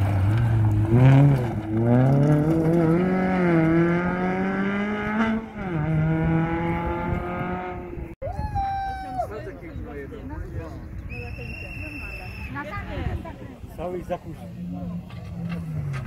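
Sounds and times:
rally car engine revving: 0:00.0 - 0:08.2, 0:14.3 - 0:16.0.

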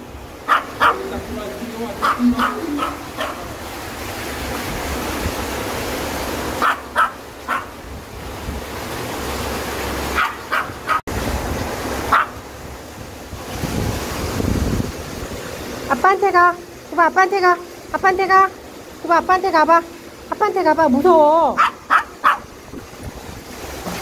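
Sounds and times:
stream rushing over rocks: 0:00.0 - 0:24.0
small dog yipping and barking: 0:00.5 - 0:01.2, 0:02.0 - 0:03.5, 0:06.6 - 0:07.8, 0:10.2 - 0:11.1, 0:12.1 - 0:12.4, 0:21.6 - 0:22.5.

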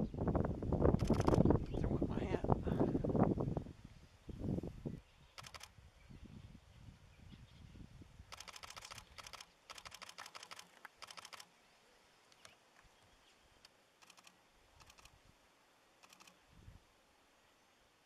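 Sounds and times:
camera shutters clicking rapidly: 0:01.0 - 0:01.5, 0:05.4 - 0:05.7, 0:08.3 - 0:11.5.

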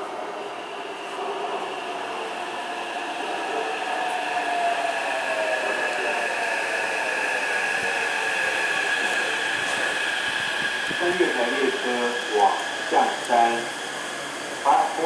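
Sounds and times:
train running noise: 0:00.0 - 0:15.0.

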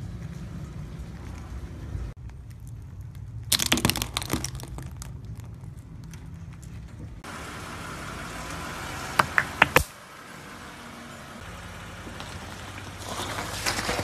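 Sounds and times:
tire crushing wet foam: 0:02.2 - 0:07.3, 0:12.0 - 0:14.0
tire bursting pods: 0:08.4 - 0:10.0.

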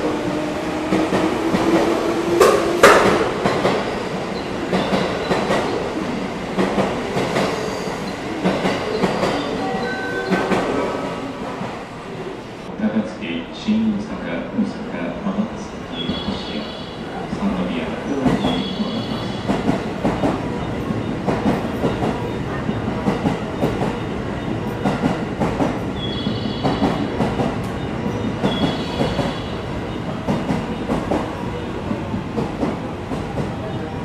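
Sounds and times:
train wheel squeals: 0:07.4 - 0:08.3, 0:27.8 - 0:30.8.

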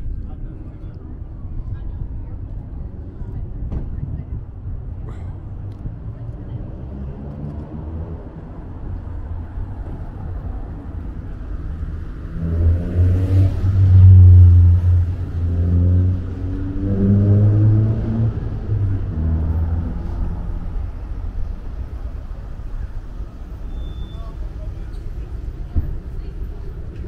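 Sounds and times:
city traffic hum: 0:00.0 - 0:27.0
vehicle engine passing by: 0:11.6 - 0:23.1.

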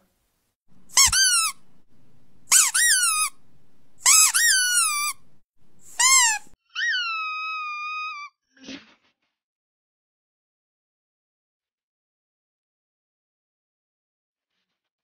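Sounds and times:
high-pitched squeaks: 0:00.9 - 0:01.6, 0:02.5 - 0:03.4, 0:04.0 - 0:05.2, 0:05.8 - 0:08.4.

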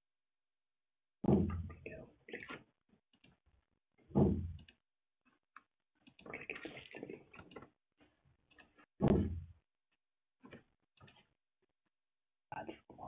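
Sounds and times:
dull thumps: 0:01.2 - 0:01.8, 0:04.1 - 0:04.7, 0:09.0 - 0:09.5.

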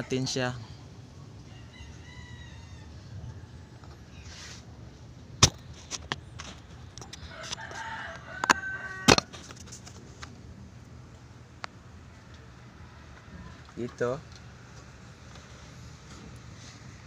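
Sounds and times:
rooster crowing: 0:01.4 - 0:03.9, 0:07.2 - 0:09.4.

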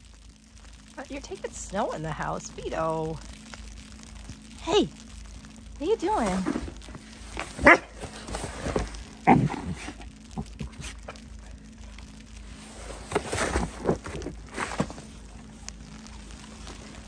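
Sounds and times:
snow crunching and scraping: 0:05.8 - 0:17.0.

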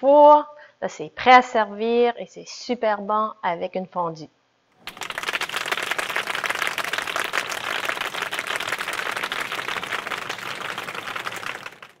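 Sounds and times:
crowd applauding: 0:04.8 - 0:12.0.

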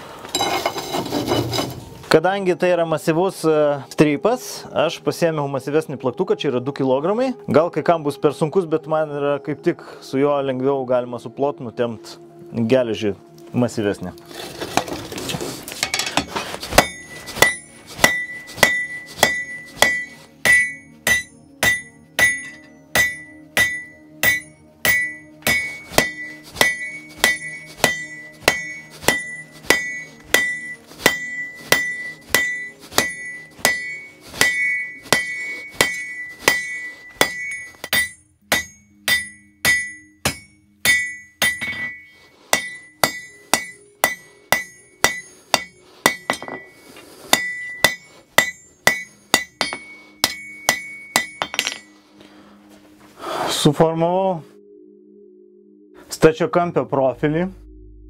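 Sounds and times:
hammer ringing on anvil: 0:15.9 - 0:52.0.

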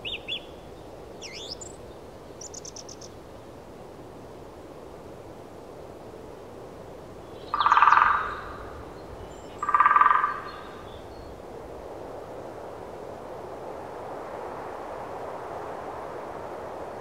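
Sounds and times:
steady background hiss: 0:00.0 - 0:17.0
frog croaking: 0:07.5 - 0:08.6, 0:09.6 - 0:10.6.

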